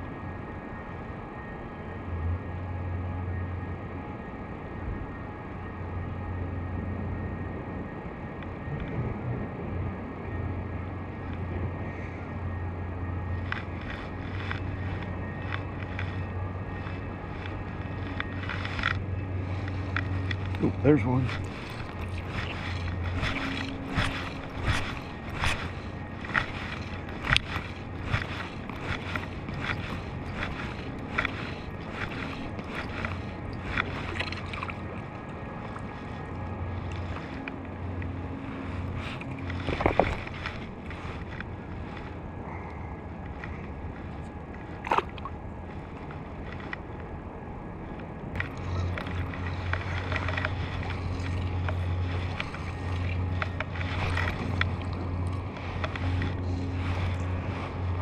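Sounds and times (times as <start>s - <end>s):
steady low hum: 0.0s - 58.0s
water lapping and rippling: 10.9s - 47.2s, 47.8s - 58.0s
fishing tackle clicking: 13.4s - 34.8s, 48.4s - 56.4s.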